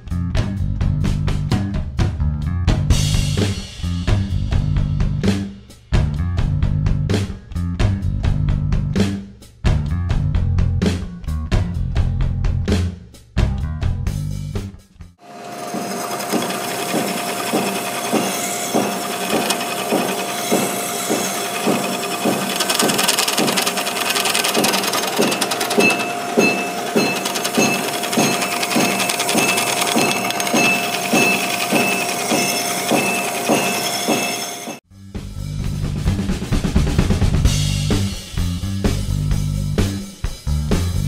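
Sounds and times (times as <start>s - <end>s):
drill press whining: 15.2s - 34.8s
file stroking copper tube: 15.4s - 34.8s.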